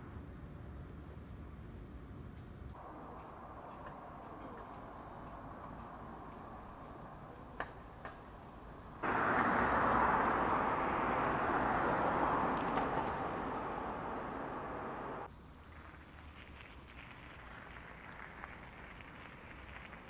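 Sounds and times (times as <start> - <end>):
quiet street background: 0.0 - 20.0
car driving past: 9.0 - 15.3
faint clicks: 12.5 - 15.2.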